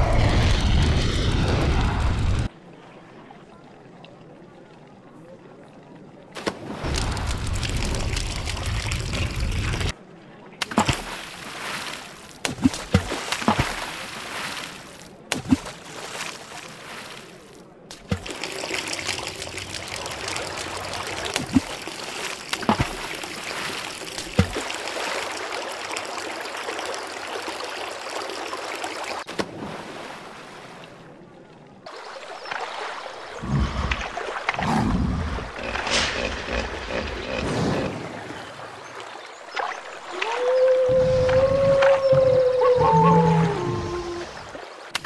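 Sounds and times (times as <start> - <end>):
low rumble: 0.0 - 2.5
water plops and drips: 6.4 - 10.0, 17.9 - 29.5
gushing water: 6.7 - 10.0, 18.0 - 29.3.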